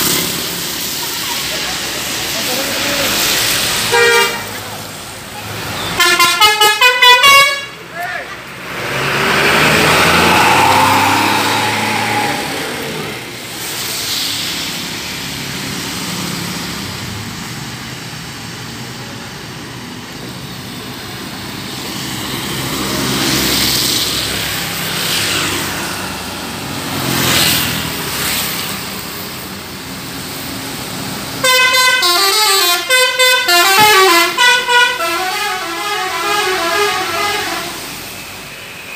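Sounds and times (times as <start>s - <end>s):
traffic on a wet road: 0.0s - 38.9s
musical air horn tune: 3.9s - 4.5s, 6.0s - 7.8s, 31.4s - 38.0s.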